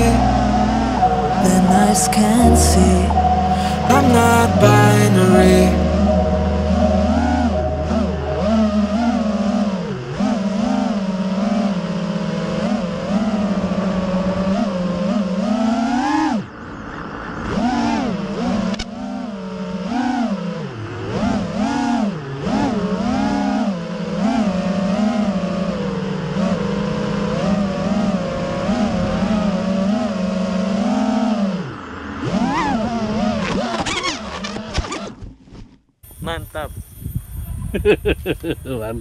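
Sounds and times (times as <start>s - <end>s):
quadcopter motors whining: 6.0s - 35.2s.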